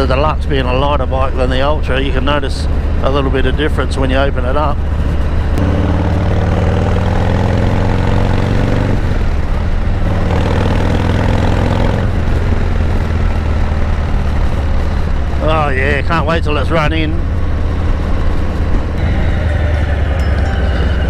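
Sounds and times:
motorcycle engine accelerating: 0:04.8 - 0:21.0.

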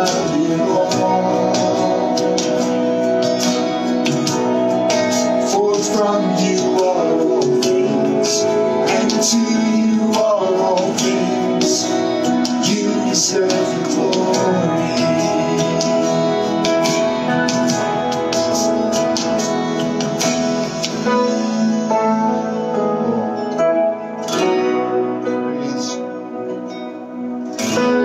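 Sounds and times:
people singing worship song: 0:00.0 - 0:03.3, 0:05.2 - 0:17.9
guitar accompaniment: 0:00.0 - 0:28.0.

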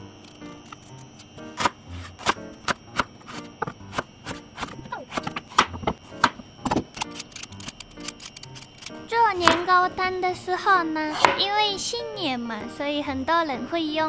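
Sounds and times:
knife chopping on wooden board: 0:09.5 - 0:09.7, 0:11.1 - 0:11.5.

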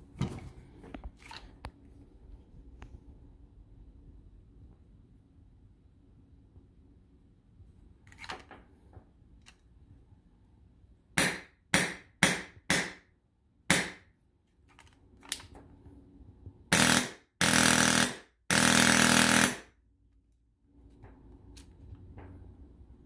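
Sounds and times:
airsoft rifle full-auto bursts: 0:16.7 - 0:19.7.

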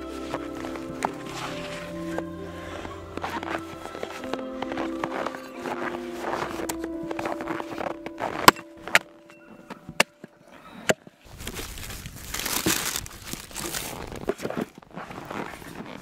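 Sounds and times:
rustling: 0:00.0 - 0:10.3, 0:11.3 - 0:16.0
faint background music: 0:00.0 - 0:10.9.

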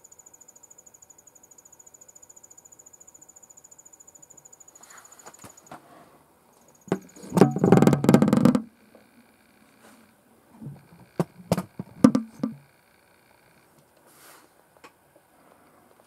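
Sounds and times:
cricket chirping trill: 0:00.0 - 0:05.7, 0:06.5 - 0:07.9.

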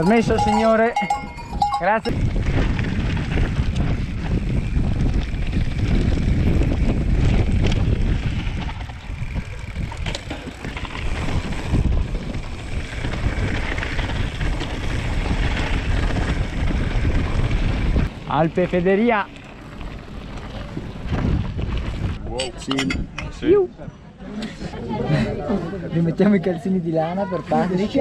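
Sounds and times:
wind buffeting microphone: 0:00.0 - 0:18.8, 0:20.2 - 0:23.6
bike rattling over bumps: 0:00.0 - 0:23.4.

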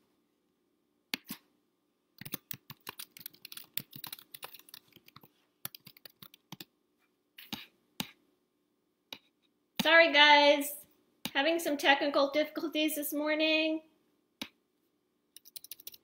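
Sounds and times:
typing on computer keyboard: 0:02.2 - 0:06.7, 0:15.4 - 0:16.0.

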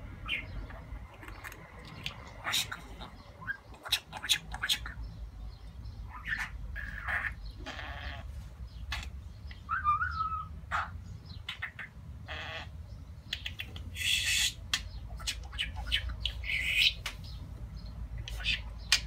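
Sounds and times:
budgerigar chirping and chattering: 0:00.2 - 0:19.0
budgerigar squawks: 0:02.4 - 0:04.9, 0:06.1 - 0:08.3, 0:09.7 - 0:12.7.

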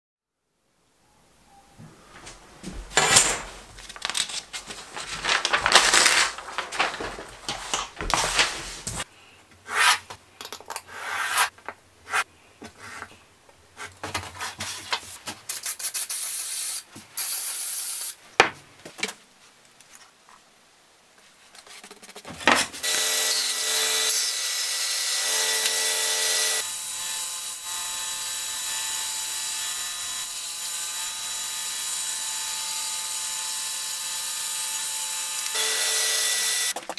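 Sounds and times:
wood sheet scraping: 0:01.8 - 0:09.1
bandsaw cutting: 0:22.8 - 0:36.8.

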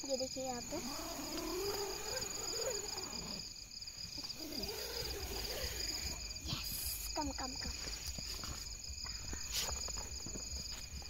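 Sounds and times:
crickets chirping: 0:00.0 - 0:11.0.

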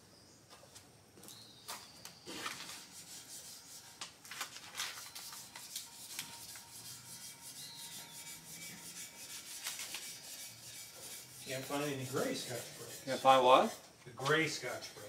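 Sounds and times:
sandpaper rasping back and forth: 0:02.3 - 0:04.0, 0:04.9 - 0:15.0.

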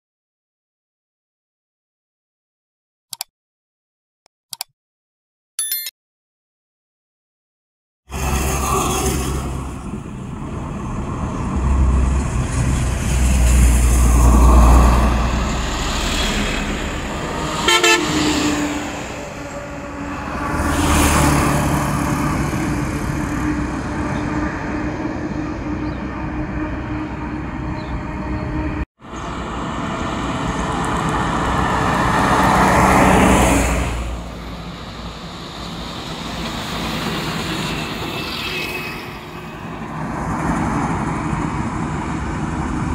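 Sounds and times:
trucks and motorcycles driving past: 0:08.1 - 0:42.9
vehicle horn toots: 0:17.6 - 0:18.4.

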